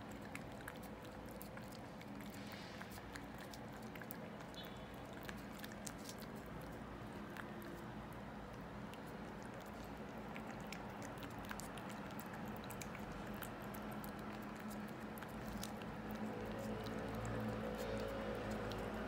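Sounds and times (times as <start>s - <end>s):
cat tongue licking clicks: 8.5s - 19.0s.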